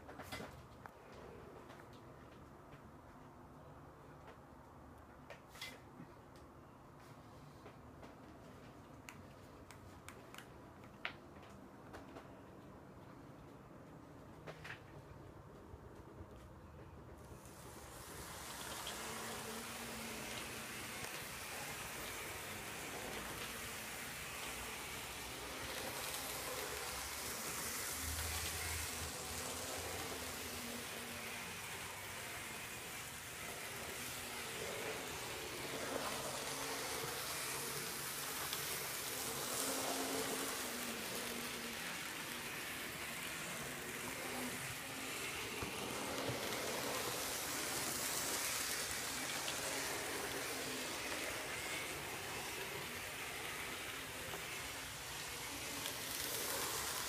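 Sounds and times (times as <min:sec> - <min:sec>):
faint motor whine: 0:00.0 - 0:57.0
model train wheels hissing on rails: 0:17.2 - 0:57.0.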